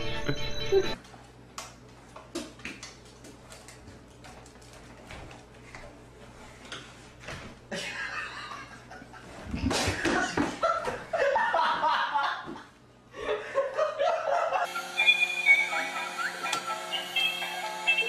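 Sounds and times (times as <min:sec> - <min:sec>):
music: 0:00.0 - 0:01.0, 0:14.8 - 0:18.0
people laughing: 0:07.7 - 0:14.7.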